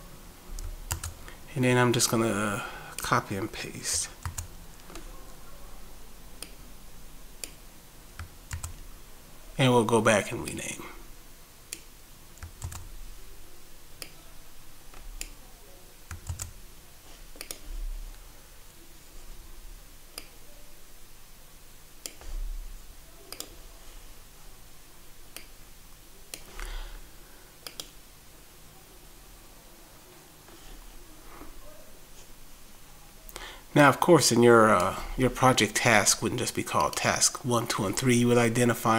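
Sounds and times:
keyboard and mouse clicks: 0.6 - 1.2, 4.2 - 5.1, 8.2 - 8.8, 11.7 - 12.9, 16.1 - 16.5, 17.3 - 17.6, 23.3 - 23.6, 27.6 - 28.0.

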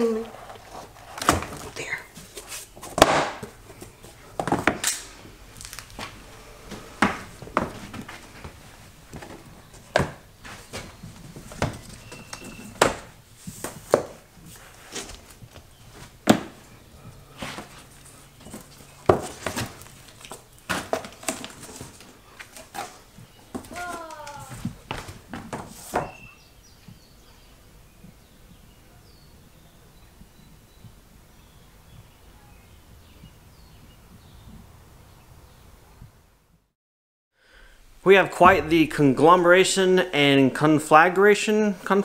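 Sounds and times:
floor planks clacking and knocking: 0.0 - 5.0, 5.6 - 14.3, 18.4 - 26.2, 38.3 - 39.3.

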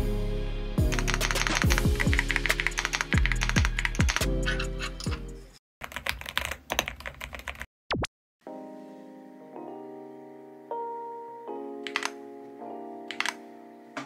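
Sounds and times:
music with deep bass beat: 0.0 - 4.5
mechanical keyboard key clacks: 11.9 - 12.1, 13.1 - 13.4.

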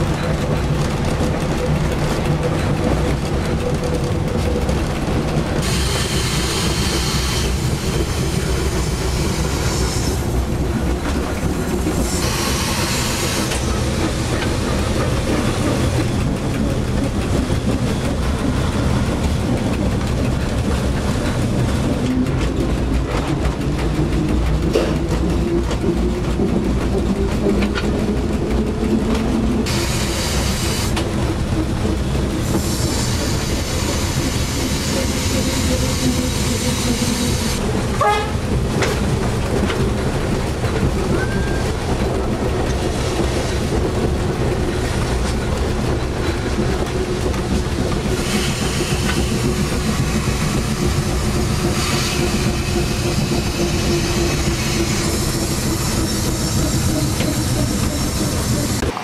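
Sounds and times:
train wheels rumbling on rails: 0.0 - 59.0
wheel squeal: 41.1 - 41.8.

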